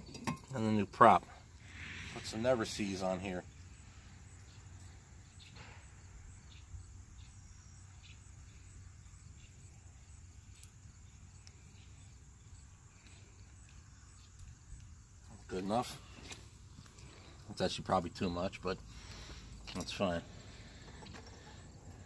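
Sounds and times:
faint insect chirping: 0.0s - 22.0s
faint soft clicks: 11.4s - 11.6s.

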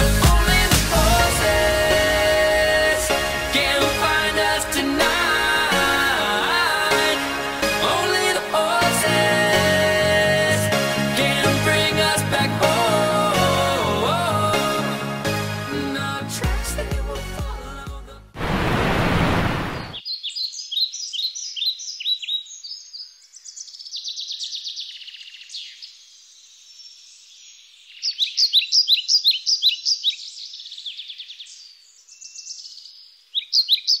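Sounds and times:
music: 0.0s - 18.4s
burst of rushing noise: 0.7s - 7.8s, 18.4s - 20.0s
birds chirping: 19.2s - 34.0s.

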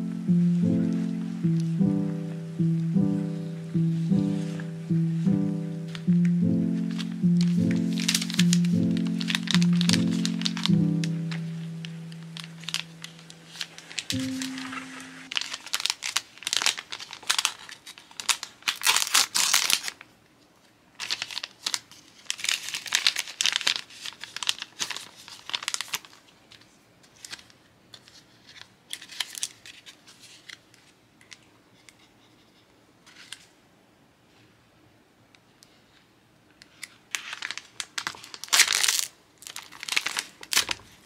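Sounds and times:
plastic packaging crinkling and tearing: 6.9s - 20.1s, 20.9s - 31.4s, 36.7s - 41.0s.

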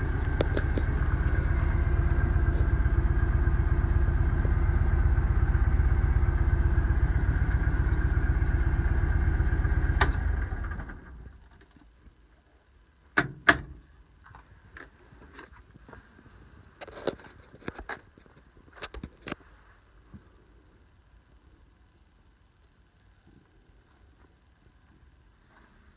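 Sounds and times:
engine idling: 0.0s - 17.7s.

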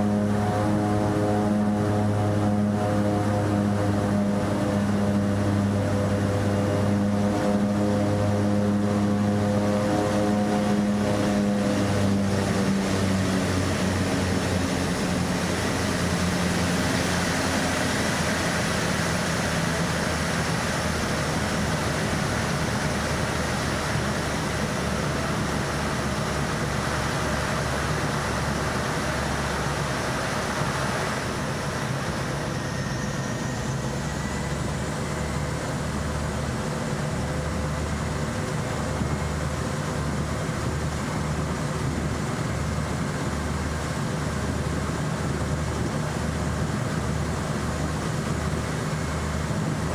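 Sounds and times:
faint rising whine: 0.0s - 49.9s
propeller drone: 0.0s - 49.9s.

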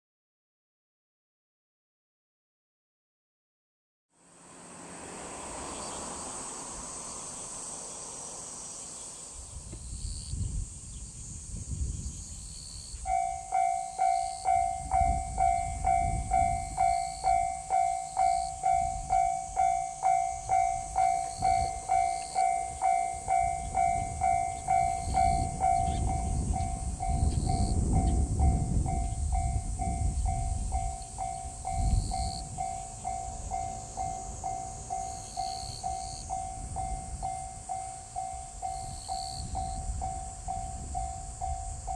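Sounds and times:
steady high hiss: 4.4s - 14.6s
level crossing warning bell: 12.7s - 41.9s.

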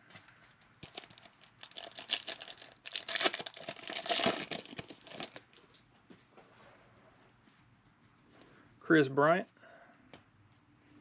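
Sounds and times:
foil wrapper tearing and crinkling: 0.8s - 5.4s.

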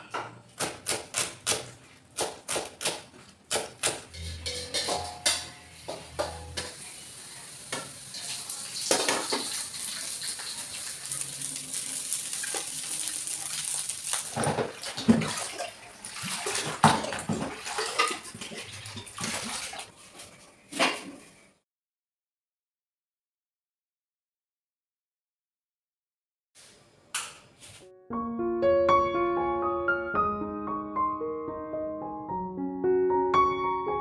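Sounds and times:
utensils and dishes clanking: 3.6s - 21.4s
metal spatula scraping wok: 4.1s - 8.3s
rice hissing in a wok: 6.8s - 14.3s.

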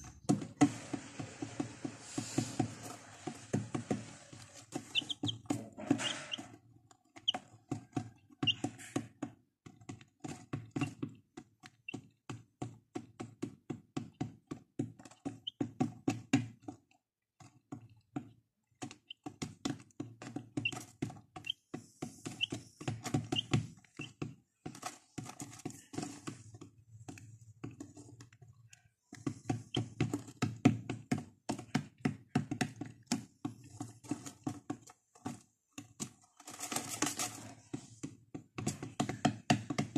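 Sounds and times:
chicks pecking on plastic: 0.0s - 39.9s
chicks peeping: 1.4s - 6.5s, 7.2s - 7.4s, 8.4s - 9.0s, 20.6s - 20.8s, 22.2s - 24.2s.

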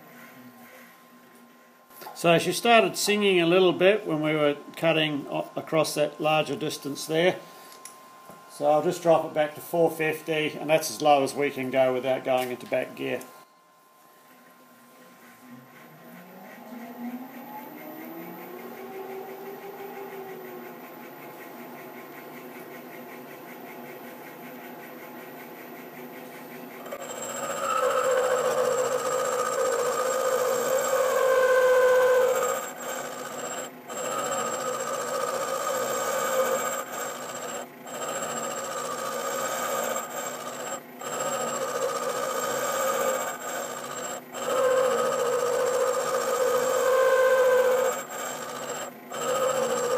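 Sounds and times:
steady ringing tone: 26.6s - 49.9s
milling machine cutting metal: 26.8s - 49.9s.

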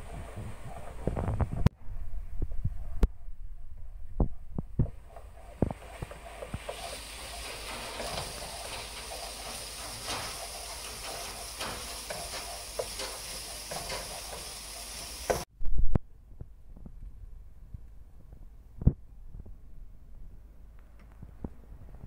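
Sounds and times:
spatula scraping a wok: 5.8s - 15.5s
paste sizzling in hot oil: 6.6s - 15.5s.

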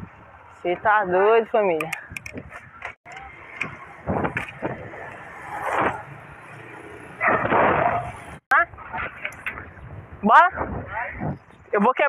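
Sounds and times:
wind rushing over microphone: 0.0s - 11.9s.

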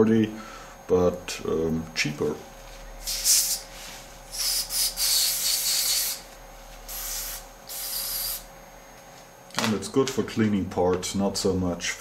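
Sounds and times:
aerosol can spray hissing: 3.0s - 3.7s, 4.3s - 6.3s, 6.9s - 8.5s.

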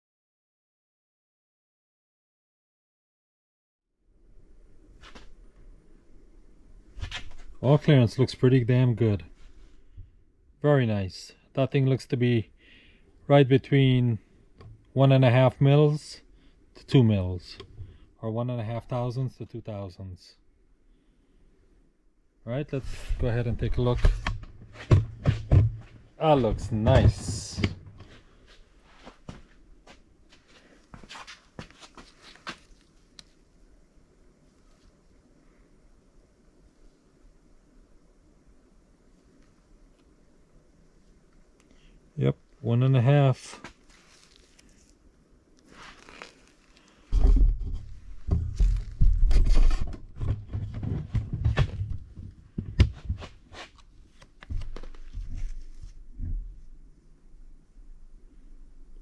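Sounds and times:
handling rustling: 30.4s - 33.5s, 43.5s - 56.1s
gloved hands clicking and rustling: 43.7s - 47.1s, 52.8s - 55.8s.

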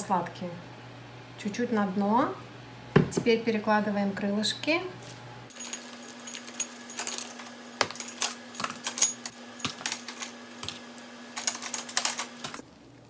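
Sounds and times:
metal tongs clicking and clinking: 5.5s - 12.6s.

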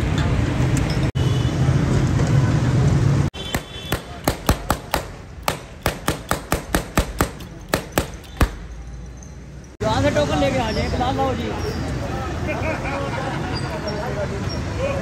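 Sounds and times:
loud background din with hum: 1.8s - 9.0s
sharp knocks: 3.4s - 8.7s.

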